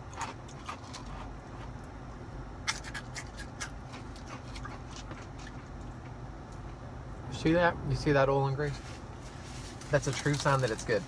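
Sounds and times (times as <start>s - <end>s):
crunchy food being eaten: 0.0s - 2.0s, 2.6s - 6.2s
low steady hum: 0.0s - 11.0s
food packaging clicks and crackles: 9.9s - 11.0s.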